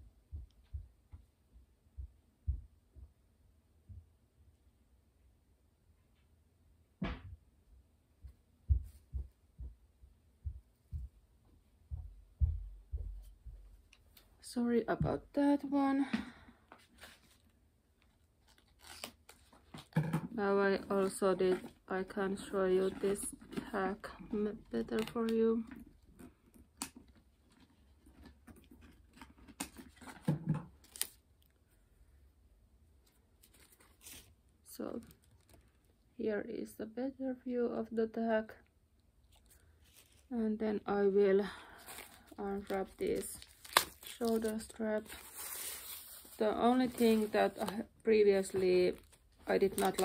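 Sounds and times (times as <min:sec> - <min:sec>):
footsteps on indoor floor: 0:08.2 - 0:13.9.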